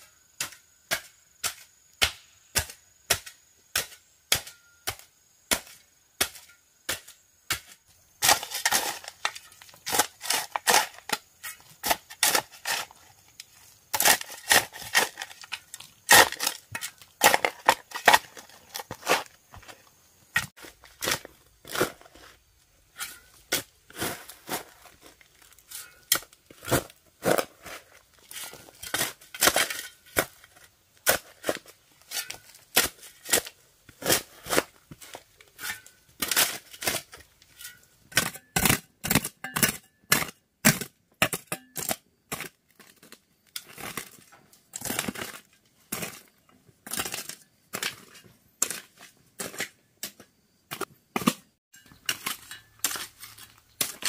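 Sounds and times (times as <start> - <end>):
sharp chopping and cracking: 13.9 - 15.5, 16.1 - 19.3.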